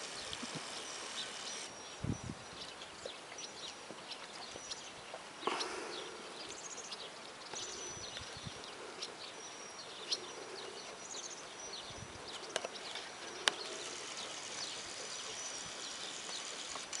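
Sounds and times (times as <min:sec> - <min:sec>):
small birds chirping: 0:00.0 - 0:17.0
sharp clicks: 0:13.4 - 0:14.8.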